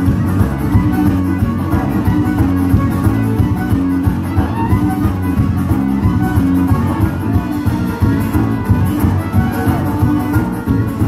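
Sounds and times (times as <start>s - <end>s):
bowed fiddle: 0.0s - 11.0s
steady beat: 0.0s - 11.0s
strummed acoustic guitar: 0.0s - 11.0s.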